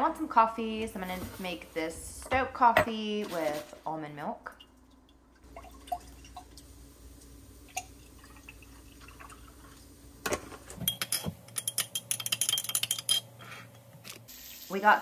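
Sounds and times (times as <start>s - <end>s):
liquid pouring into glass jar: 4.6s - 6.6s, 7.7s - 9.8s
stirrer clinking against glass: 10.8s - 13.3s.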